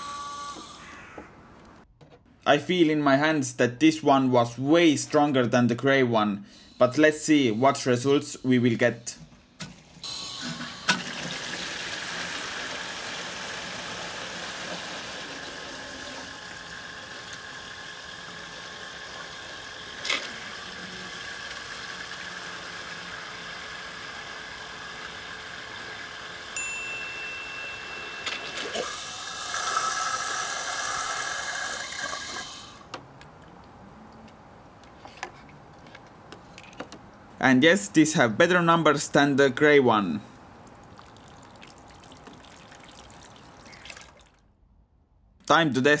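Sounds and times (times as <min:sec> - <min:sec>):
water pump motor whine: 0:00.0 - 0:00.8, 0:10.0 - 0:32.9
water gushing into a jug: 0:10.9 - 0:26.2, 0:28.8 - 0:32.8, 0:40.6 - 0:44.4.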